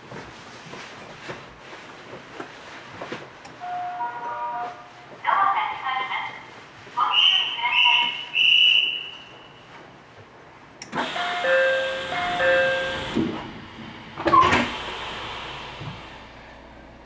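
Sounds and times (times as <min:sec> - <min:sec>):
train door two-note chime: 0:03.6 - 0:04.8, 0:11.0 - 0:13.2
train doors shutting thump: 0:10.9 - 0:16.2
hiss: 0:14.6 - 0:16.2.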